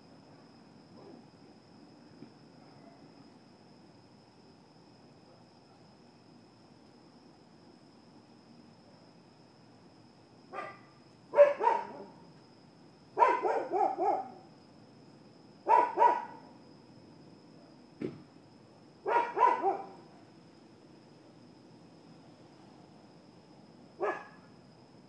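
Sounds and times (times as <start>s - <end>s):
dog barking: 10.5s - 12.2s, 13.2s - 14.4s, 15.7s - 16.4s, 19.0s - 20.0s, 24.0s - 24.4s.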